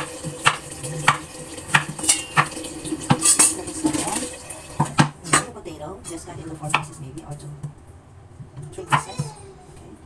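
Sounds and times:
knife chopping on cutting board: 0.4s - 2.5s.

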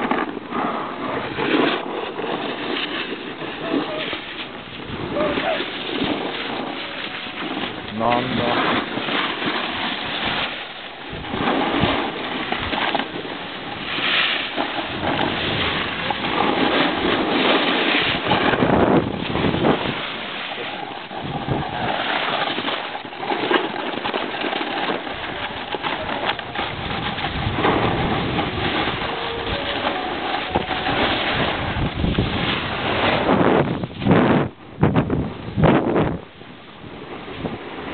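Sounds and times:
skis sliding over snow: 0.0s - 36.1s, 36.9s - 37.9s
wind buffeting microphone: 0.0s - 37.9s.

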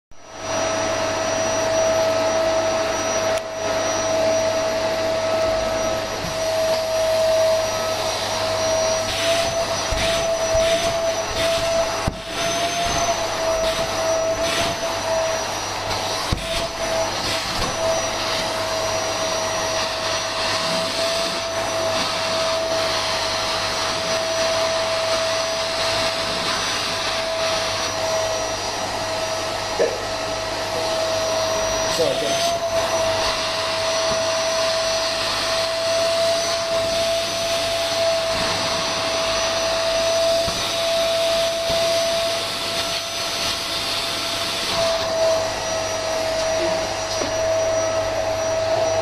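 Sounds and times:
vacuum cleaner running: 0.1s - 49.0s.

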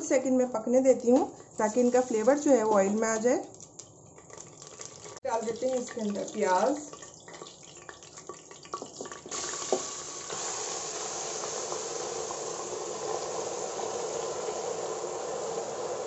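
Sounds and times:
onions sizzling in hot oil: 4.8s - 16.0s.

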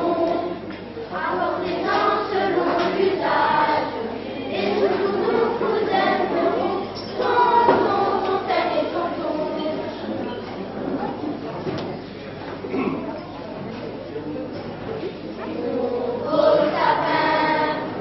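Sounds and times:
children's choir singing: 0.0s - 10.2s, 15.4s - 18.0s.

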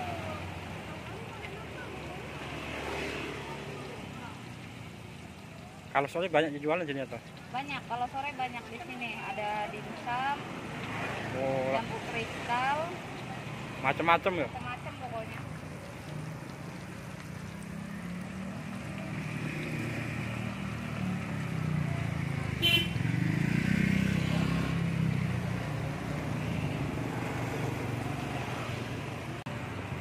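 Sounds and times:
vehicle engine passing: 0.0s - 5.2s, 7.8s - 30.0s
chicken sizzling in oil: 0.0s - 29.3s.

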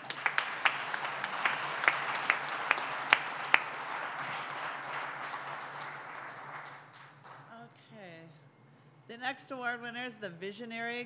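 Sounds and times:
audience applauding: 0.0s - 7.5s
sharp loud claps: 0.0s - 7.5s.

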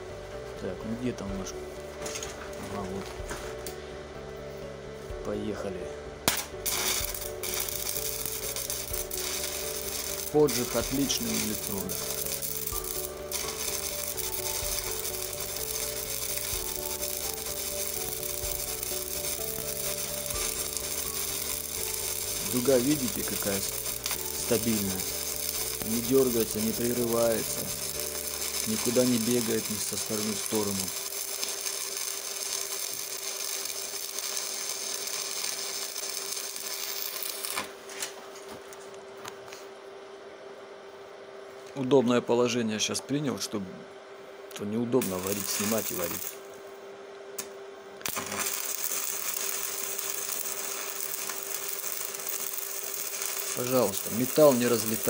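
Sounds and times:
steady hum: 0.0s - 55.0s
welding arc crackling sizzle: 6.3s - 38.9s, 44.5s - 55.0s.

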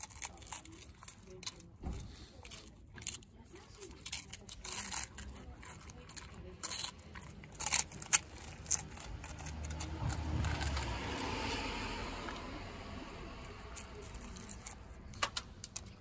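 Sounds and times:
husky chewing ice-cream cone: 0.0s - 15.2s.

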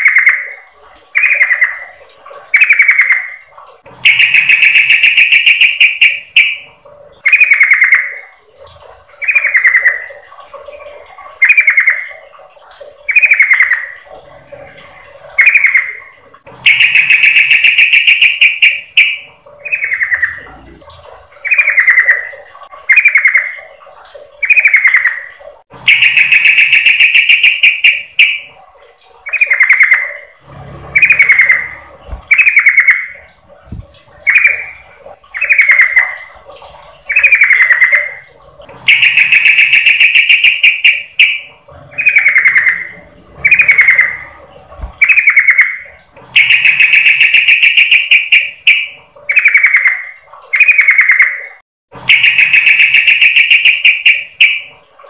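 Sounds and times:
bird trilled call: 4.0s - 6.6s, 16.6s - 20.5s, 25.9s - 28.5s, 30.9s - 33.2s, 34.2s - 36.2s, 38.9s - 44.3s, 45.0s - 51.4s, 52.1s - 54.7s.

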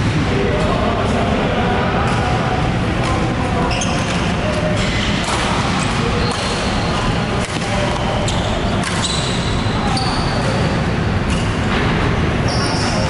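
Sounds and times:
shoes squeaking on court: 3.6s - 11.7s
racket hitting shuttlecock: 7.4s - 8.1s.

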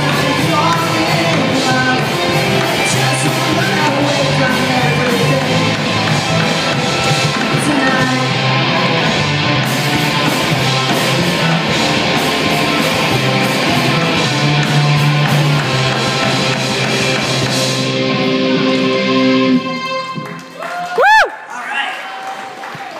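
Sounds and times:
distorted electric guitars: 0.0s - 20.5s
bass guitar: 0.0s - 21.2s
drums: 0.0s - 21.3s.

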